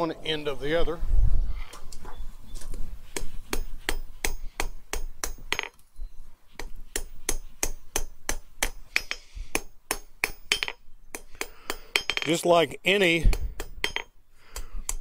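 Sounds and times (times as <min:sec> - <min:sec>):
hammer striking steel on anvil: 0:06.9 - 0:12.4, 0:13.2 - 0:14.1.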